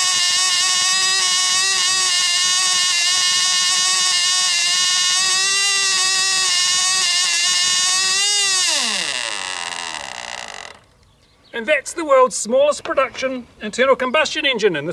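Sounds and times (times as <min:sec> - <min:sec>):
tiny glow engine buzzing: 0:00.0 - 0:10.9.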